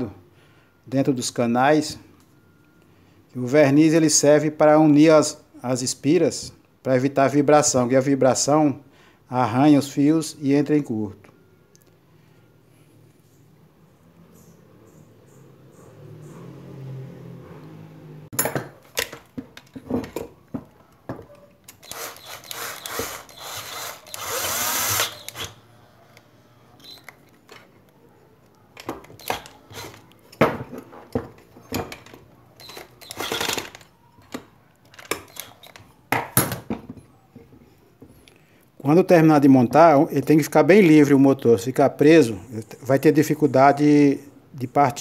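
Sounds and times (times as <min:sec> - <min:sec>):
cordless drill whining: 0:21.8 - 0:25.7, 0:32.6 - 0:33.8
metal parts clicking and knocking: 0:28.8 - 0:37.1.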